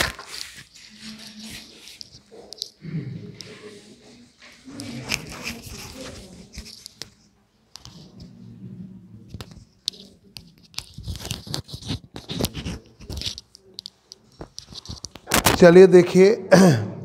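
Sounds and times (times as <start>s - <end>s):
cloth rustling on microphone: 3.4s - 15.5s.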